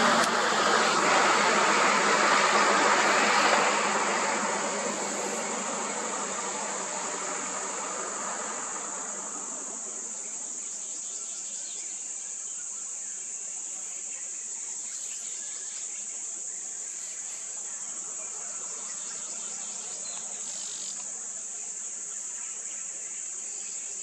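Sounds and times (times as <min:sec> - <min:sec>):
vehicle rumble: 0:00.0 - 0:11.6
high-pitched insect drone: 0:00.0 - 0:24.0.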